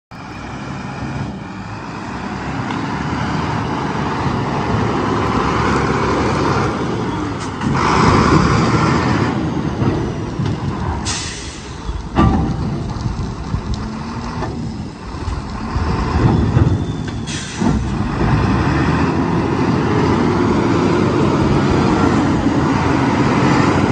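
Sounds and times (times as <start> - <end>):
diesel truck engine running: 0.1 - 23.9
compressed air hiss: 11.0 - 11.8, 17.3 - 17.8.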